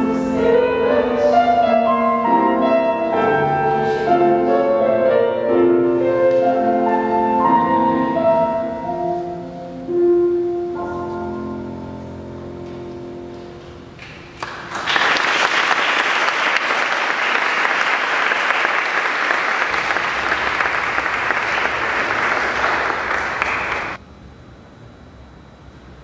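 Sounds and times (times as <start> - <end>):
audience applauding: 14.0 - 24.0.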